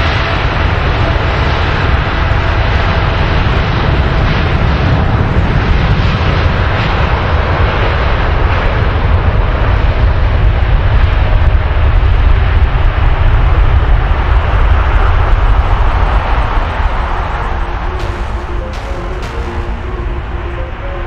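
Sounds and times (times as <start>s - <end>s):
jet engines at takeoff thrust: 0.0s - 21.0s.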